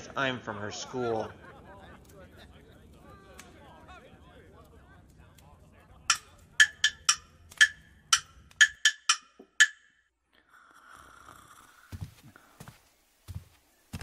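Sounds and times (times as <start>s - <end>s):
wood block strikes: 6.1s - 10.0s.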